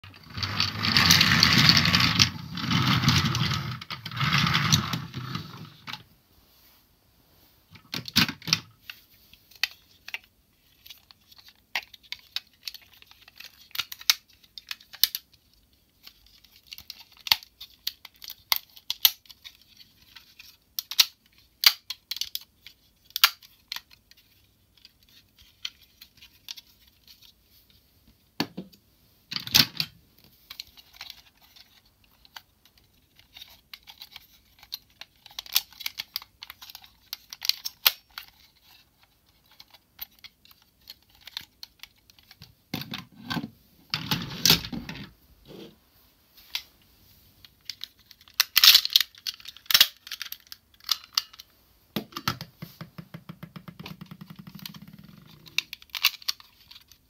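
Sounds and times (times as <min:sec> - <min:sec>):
plastic toy parts clicking: 0:09.5 - 0:27.2, 0:30.5 - 0:42.9, 0:47.6 - 0:51.5, 0:53.4 - 0:57.0.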